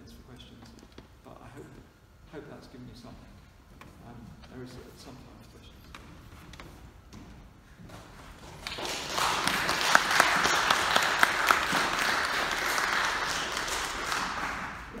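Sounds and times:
audience applauding: 8.6 - 15.0.

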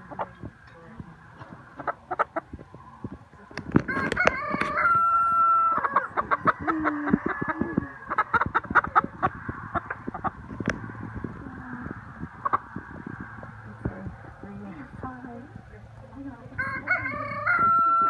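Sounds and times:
rooster crowing: 3.8 - 8.5, 16.6 - 18.0.

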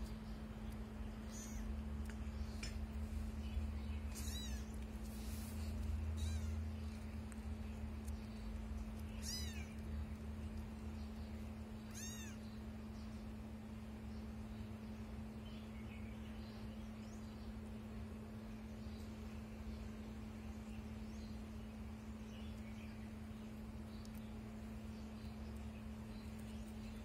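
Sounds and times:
steady low hum: 0.0 - 27.0
kittens mewing: 1.3 - 1.7, 4.1 - 4.8, 6.0 - 6.8, 9.2 - 9.8, 11.9 - 12.4.

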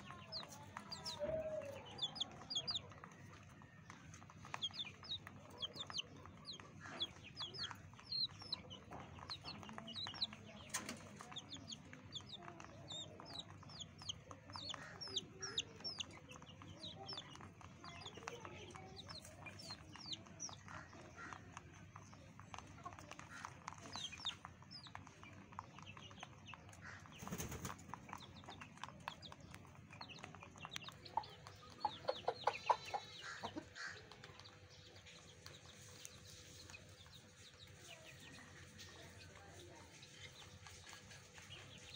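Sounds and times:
chickens clucking: 0.0 - 41.9.

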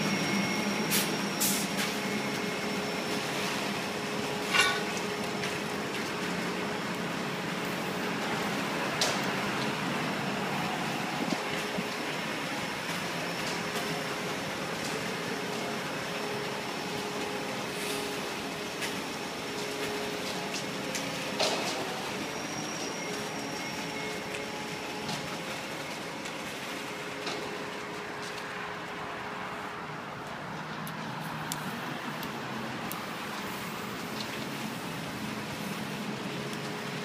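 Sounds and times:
road traffic noise: 0.0 - 37.0.

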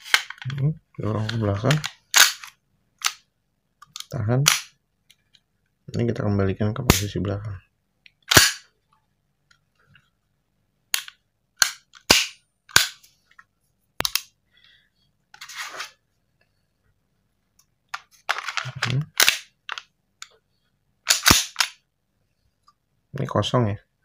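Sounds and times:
metal clicks of airsoft pistol: 14.0 - 14.3, 21.1 - 21.8.

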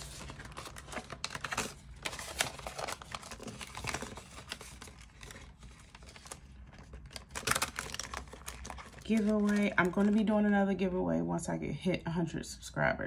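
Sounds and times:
paper and plastic rustling: 0.0 - 10.3.

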